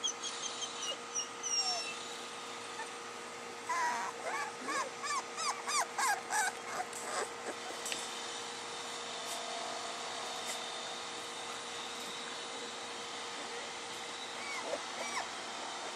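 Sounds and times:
puppies whimpering: 0:00.0 - 0:03.0, 0:03.6 - 0:07.9, 0:14.3 - 0:15.4.

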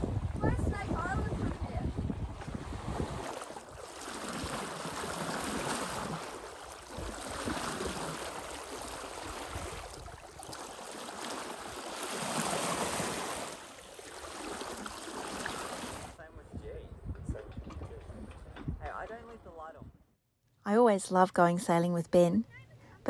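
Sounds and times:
water rushing along a hull: 0:00.0 - 0:16.2.

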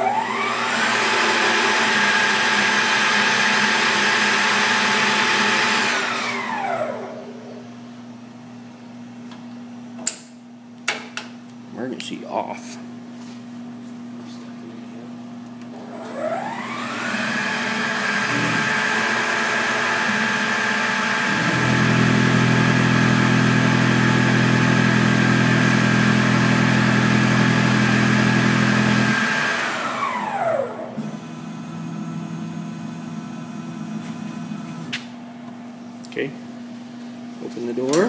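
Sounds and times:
mill spindle whine: 0:00.0 - 0:08.2, 0:15.6 - 0:35.8.

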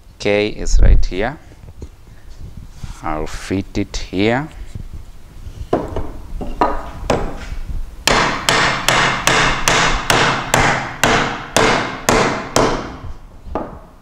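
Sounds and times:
wooden mallet knocking wood: 0:05.7 - 0:07.4, 0:08.1 - 0:13.9.

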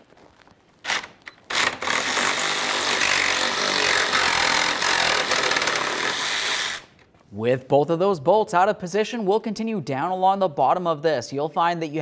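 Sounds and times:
cordless power tool running: 0:00.9 - 0:06.9.

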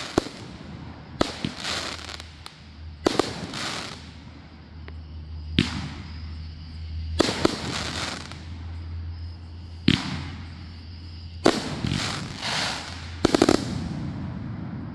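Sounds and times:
firework bangs: 0:00.0 - 0:04.4, 0:05.5 - 0:06.4, 0:07.1 - 0:08.6, 0:09.8 - 0:10.7, 0:11.4 - 0:14.9
firework stars hissing and crackling: 0:00.0 - 0:14.9.

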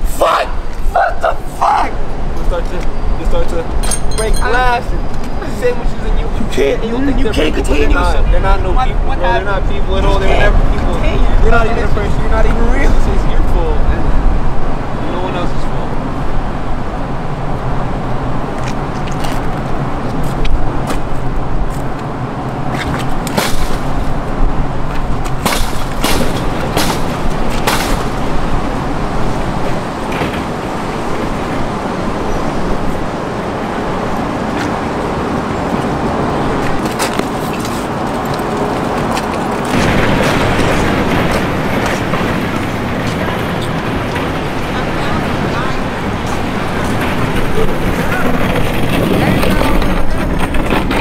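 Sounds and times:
traffic running steadily: 0:00.0 - 0:51.0
sharp knocks: 0:25.3 - 0:28.2.

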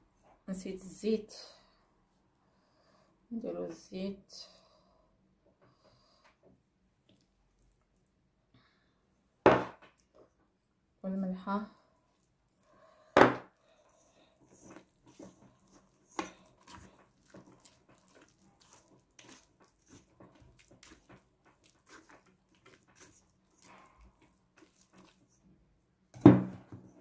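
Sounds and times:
spatula scraping dough in metal bowl: 0:14.4 - 0:25.4.

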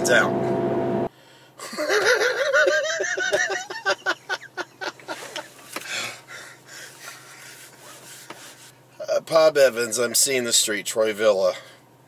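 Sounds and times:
man laughing heartily: 0:01.6 - 0:07.4.

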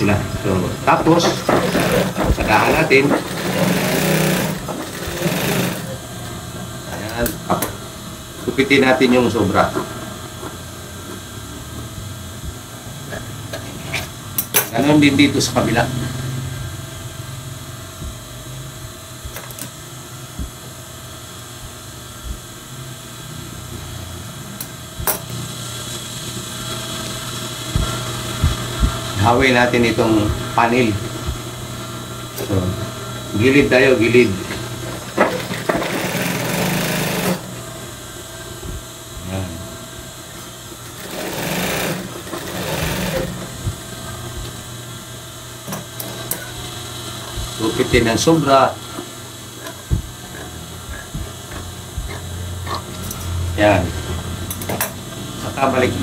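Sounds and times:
sewing machine motor humming: 0:00.8 - 0:06.0, 0:33.4 - 0:37.6, 0:40.8 - 0:43.6
sewing machine stitching: 0:01.2 - 0:06.0, 0:35.2 - 0:37.5, 0:41.0 - 0:43.4.

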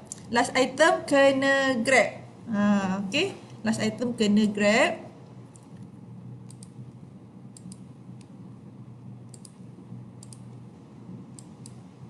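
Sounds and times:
low steady hum: 0:00.0 - 0:12.0
computer mouse clicks: 0:05.5 - 0:06.8, 0:07.6 - 0:08.3, 0:09.3 - 0:09.6, 0:10.2 - 0:10.5, 0:11.3 - 0:11.8.

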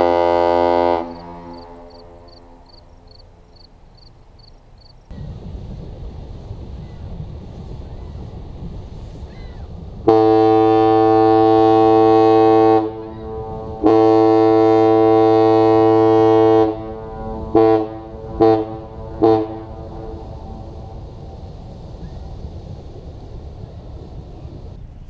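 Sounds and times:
deep ship air horn blasts: 0:00.0 - 0:03.5, 0:10.0 - 0:21.7.

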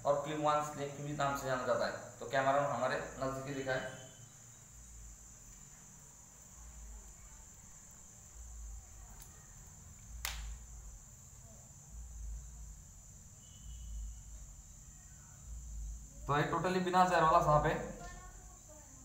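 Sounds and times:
cricket trilling: 0:00.0 - 0:19.0.

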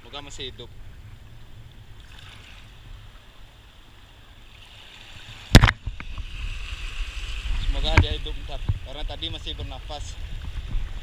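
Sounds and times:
sharp knock or splash: 0:05.5 - 0:06.2.

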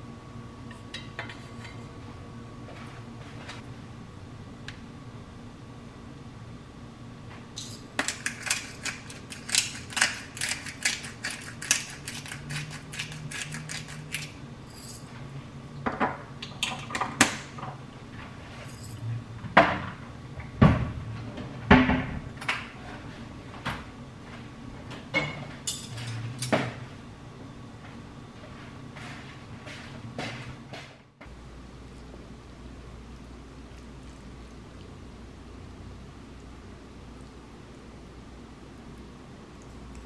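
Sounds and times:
pepper mill grinding: 0:07.6 - 0:15.0.

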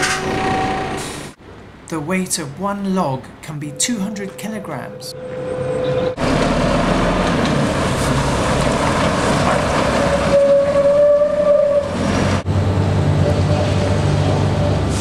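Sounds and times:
lorry diesel engine running: 0:05.1 - 0:10.8, 0:11.8 - 0:15.0.

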